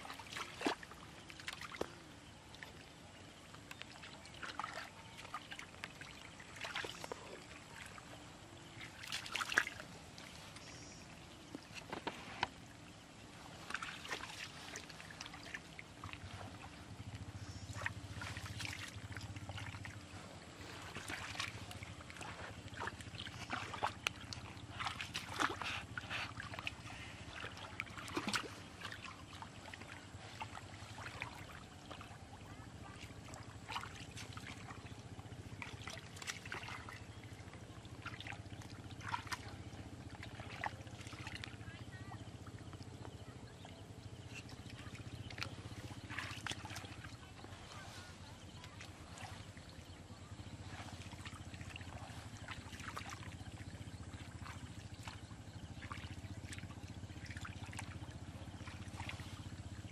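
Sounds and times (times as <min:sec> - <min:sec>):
mud squelching: 0:03.6 - 0:59.9
hands splashing in muddy water: 0:08.8 - 0:10.5, 0:13.4 - 0:16.8, 0:17.4 - 0:32.1.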